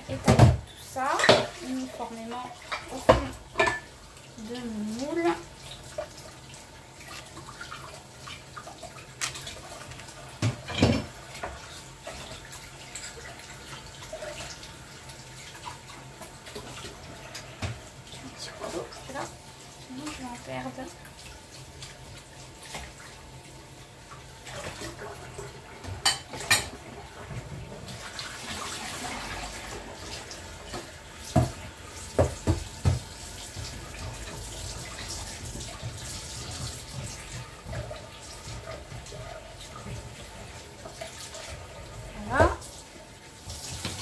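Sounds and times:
tap running into sink: 0.1s - 1.6s, 30.7s - 40.3s.

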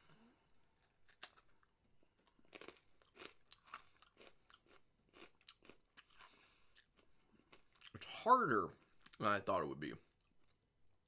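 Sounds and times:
cracker being bitten and crunched: 0.6s - 1.7s.

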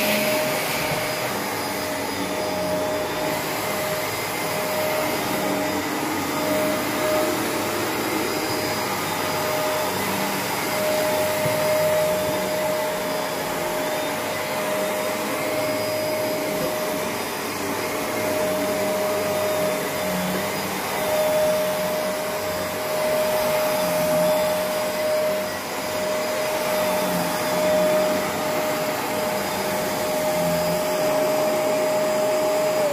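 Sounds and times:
upright vacuum cleaner running: 0.0s - 32.9s.

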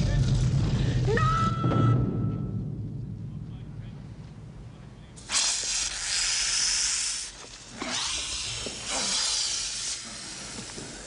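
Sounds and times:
snakes hissing: 5.2s - 11.0s.

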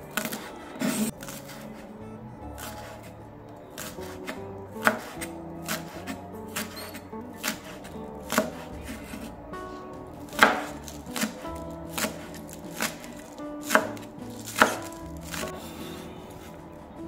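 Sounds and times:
knife chopping on cutting board: 3.8s - 9.3s, 10.3s - 16.0s.

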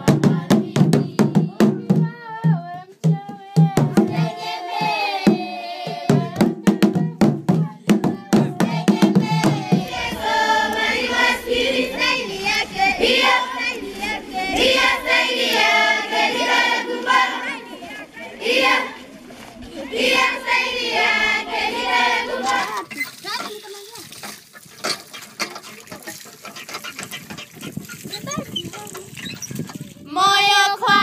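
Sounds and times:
children's choir singing: 0.0s - 1.7s, 3.6s - 22.8s, 30.2s - 31.0s
person singing: 0.0s - 10.0s
drumming: 0.0s - 12.0s.

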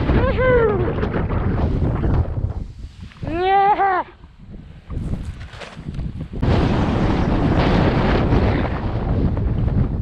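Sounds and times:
wind rushing on microphone: 0.0s - 10.0s.

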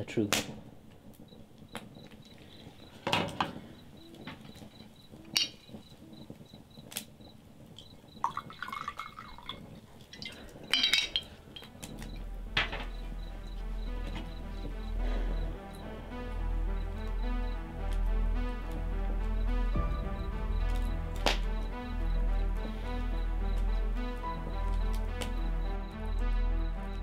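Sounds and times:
drinking glass clinking: 8.2s - 11.7s
low music drone: 10.9s - 27.0s.

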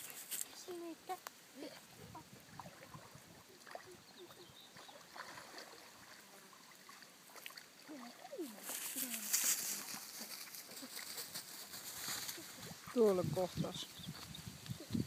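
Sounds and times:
water sloshing and splashing: 1.7s - 11.3s.

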